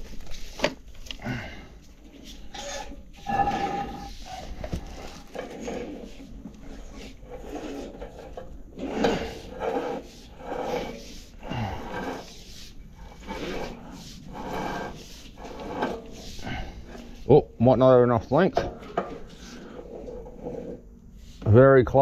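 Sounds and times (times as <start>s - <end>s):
steel spring scraping in pipe: 2.2s - 17.3s.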